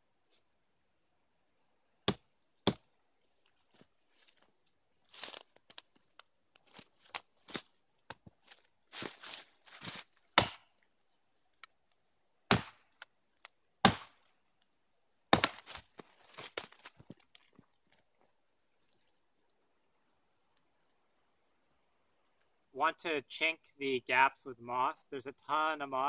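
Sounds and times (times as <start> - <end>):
axe chopping into log: 2.1 - 2.8, 10.4 - 10.7, 12.5 - 12.8, 13.8 - 14.2, 15.3 - 15.8.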